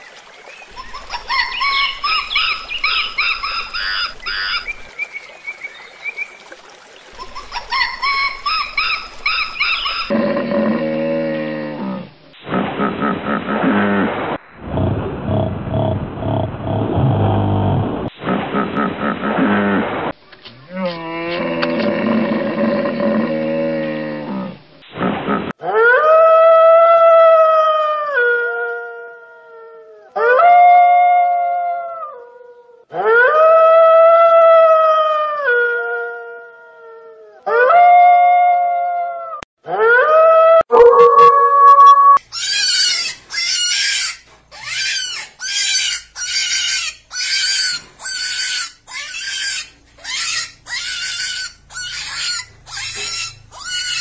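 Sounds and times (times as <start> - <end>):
wolf howling: 25.6 - 43.0
harsh high-pitched calls: 40.7 - 54.0.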